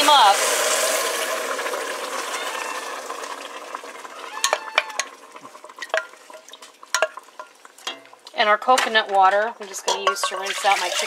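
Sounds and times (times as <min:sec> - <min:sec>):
stock sizzling in hot pot: 0:00.0 - 0:11.0
wooden spoon knocking metal pot: 0:04.4 - 0:11.0.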